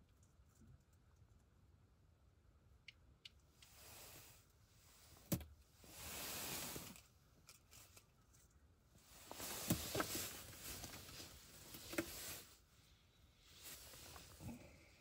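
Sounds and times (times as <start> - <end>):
faint rustling: 3.7 - 15.0.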